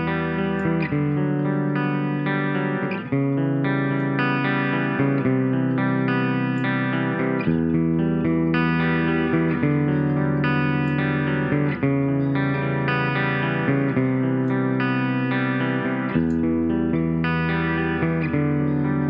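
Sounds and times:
electric guitar chords: 0:00.0 - 0:19.0.

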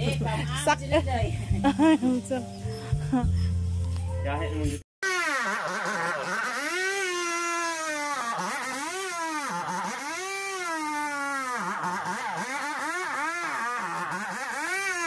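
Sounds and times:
chainsaw cutting wood: 0:05.0 - 0:15.0.

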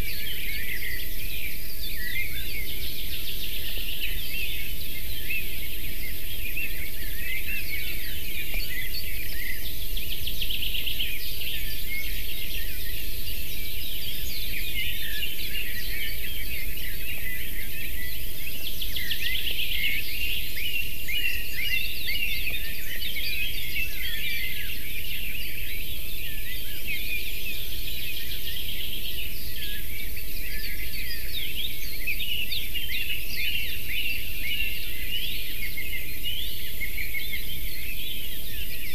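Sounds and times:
songbirds chirping and trilling: 0:00.0 - 0:38.9.

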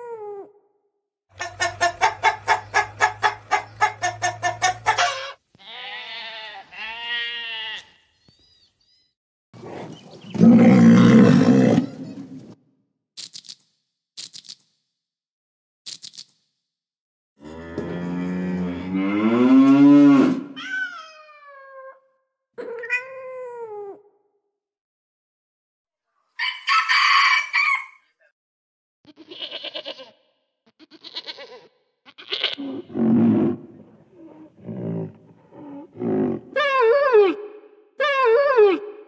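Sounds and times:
cow mooing: 0:17.4 - 0:20.6.

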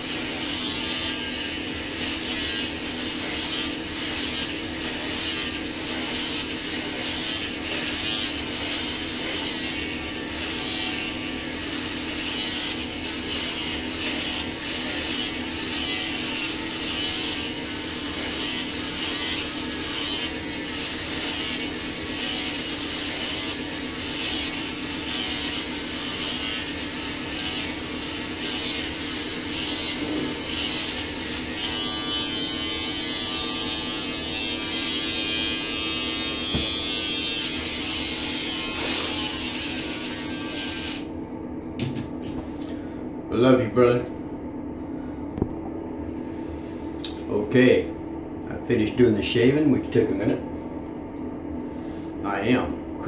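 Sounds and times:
electric hair clippers buzzing: 0:00.0 - 0:41.2.

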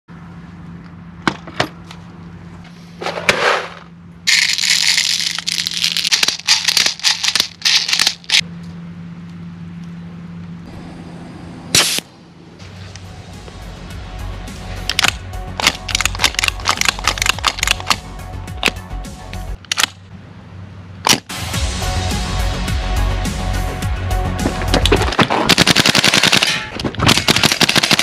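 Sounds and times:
magazine clicking and rattling: 0:04.3 - 0:08.4, 0:14.9 - 0:18.0, 0:24.9 - 0:28.0
short sharp burst: 0:11.7 - 0:12.1
sharp clicks: 0:14.9 - 0:18.0.

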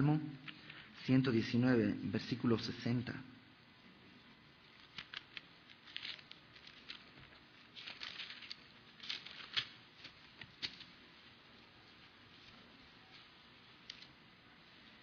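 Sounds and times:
pages rustling: 0:04.3 - 0:15.0.

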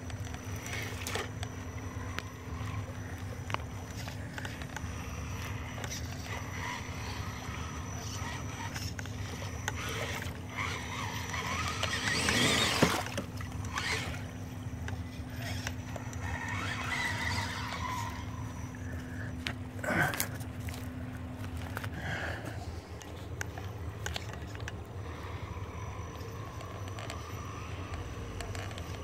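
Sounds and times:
toy car motor hum: 0:00.0 - 0:29.0
small clicks and knocks: 0:26.0 - 0:29.0.

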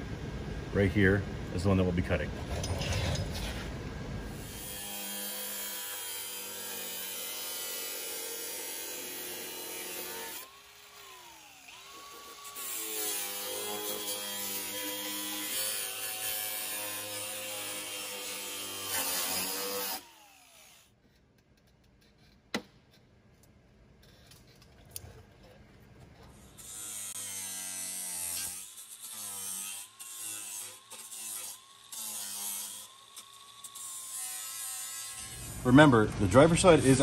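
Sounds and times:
power tool cutting sheet metal: 0:04.4 - 0:20.9, 0:26.5 - 0:35.6.

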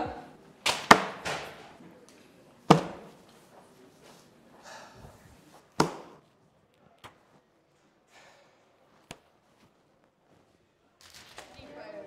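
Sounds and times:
sharp thuds in small room: 0:00.7 - 0:01.6, 0:02.7 - 0:03.2, 0:05.8 - 0:06.2
faint shuffle: 0:01.5 - 0:12.0.

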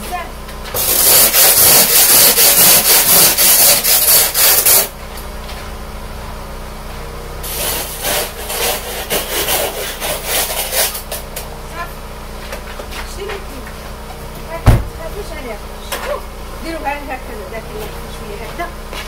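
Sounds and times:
scraping ice off car window: 0:00.7 - 0:04.9, 0:07.4 - 0:11.4.

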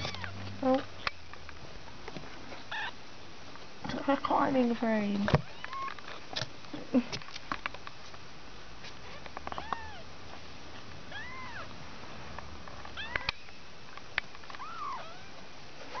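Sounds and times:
kittens mewing: 0:11.1 - 0:11.7, 0:14.6 - 0:15.4.

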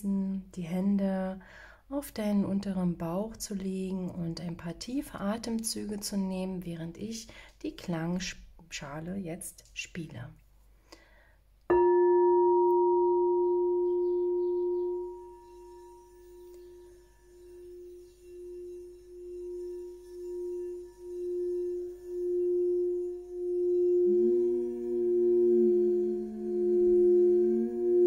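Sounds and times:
mallet circling singing bowl rim: 0:11.7 - 0:28.0
second bowl tone: 0:11.7 - 0:28.0
singing bowl struck with mallet: 0:11.7 - 0:28.0.

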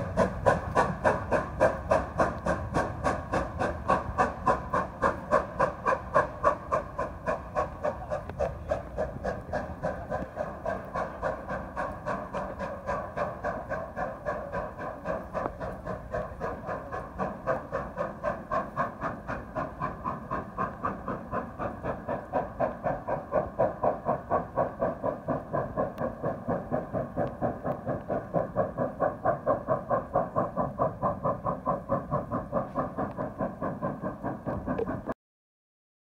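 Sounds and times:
steam locomotive exhaust beats: 0:00.0 - 0:35.2.

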